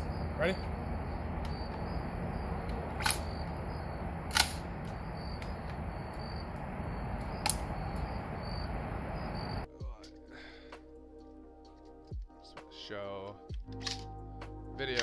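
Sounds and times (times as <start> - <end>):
faint insects chirping: 0.0 - 9.7
gun trigger clicks: 2.6 - 3.5, 4.3 - 5.6, 7.3 - 7.7.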